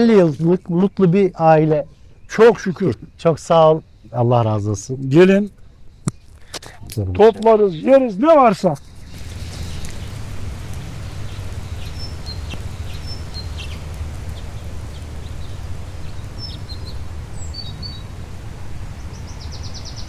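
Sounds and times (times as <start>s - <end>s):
small birds chirping: 0.0s - 20.0s
steady low rumble: 3.0s - 19.6s
bird trill: 10.9s - 18.1s.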